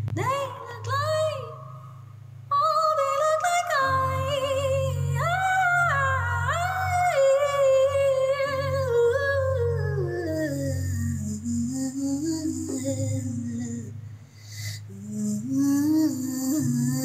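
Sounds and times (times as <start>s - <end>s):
woman singing wordless notes: 0.0s - 14.1s, 14.7s - 17.0s
low steady accompaniment: 0.0s - 17.0s.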